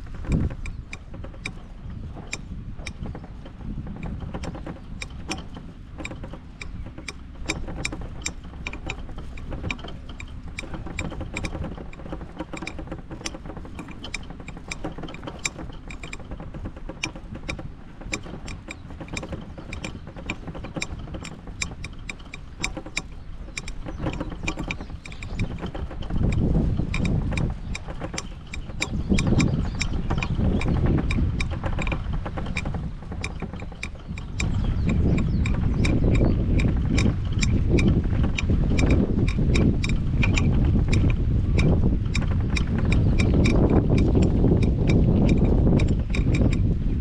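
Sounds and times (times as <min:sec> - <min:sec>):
clicks and rattles: 0:00.0 - 0:47.0
golf cart driving: 0:00.0 - 0:47.0.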